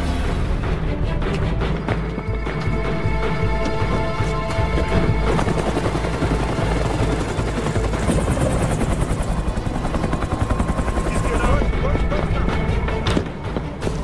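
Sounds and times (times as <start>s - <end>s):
film score held tones: 0.0s - 14.0s
helicopter rotor chopping: 2.0s - 14.0s.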